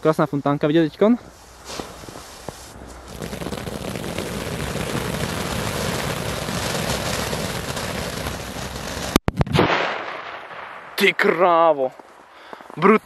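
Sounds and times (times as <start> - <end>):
firework fountain hissing: 1.4 - 9.2.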